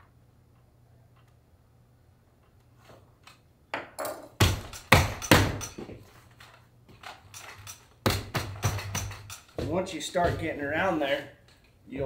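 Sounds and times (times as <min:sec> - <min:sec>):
leather scuffs and thumps: 0:08.1 - 0:11.0.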